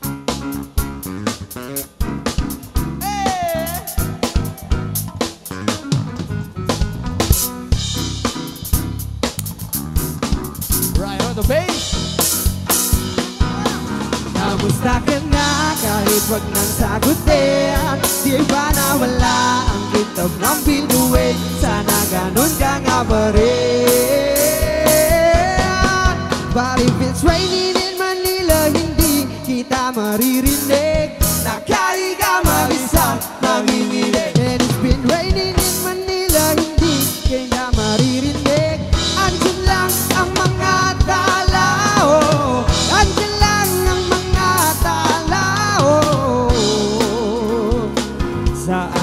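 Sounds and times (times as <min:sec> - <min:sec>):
bass guitar: 0:00.0 - 0:49.0
drum kit beat: 0:00.0 - 0:49.0
electric guitar: 0:00.0 - 0:49.0
melodic lead line: 0:00.0 - 0:49.0.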